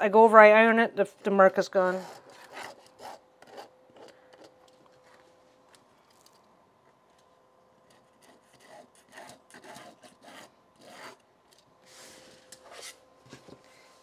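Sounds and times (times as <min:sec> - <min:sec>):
marker pen scratching on fabric: 0:07.9 - 0:11.2.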